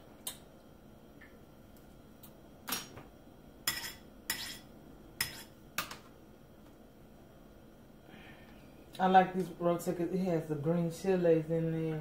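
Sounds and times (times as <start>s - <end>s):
fork clinking against ceramic bowl: 3.7s - 5.5s.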